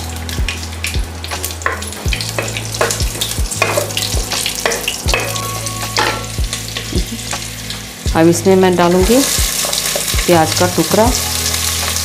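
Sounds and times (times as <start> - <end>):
spices sizzling in oil: 0.0 - 12.0.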